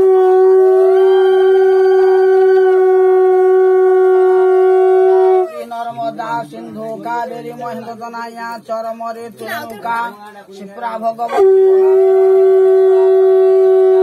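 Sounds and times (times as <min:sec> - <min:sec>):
conch shell blown: 0:00.0 - 0:05.7, 0:11.3 - 0:14.0.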